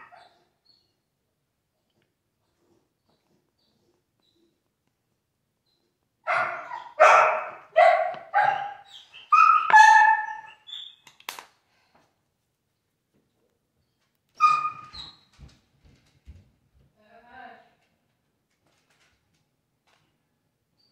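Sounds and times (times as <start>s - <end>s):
dog barking: 6.3s - 10.6s.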